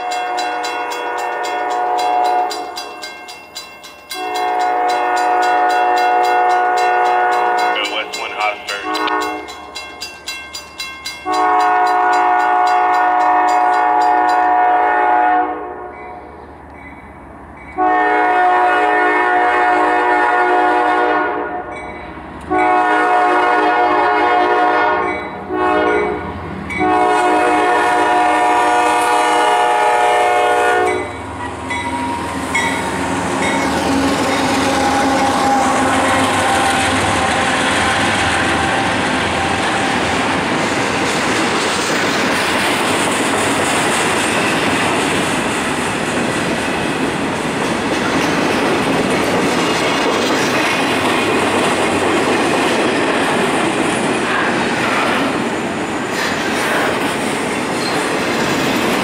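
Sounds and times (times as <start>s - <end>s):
locomotive air horn blasts: 0.0s - 2.6s, 4.1s - 8.0s, 8.8s - 9.5s, 11.2s - 16.0s, 17.8s - 21.7s, 22.5s - 26.2s, 26.8s - 31.2s, 33.9s - 40.0s
train passing with rumble: 0.0s - 59.0s.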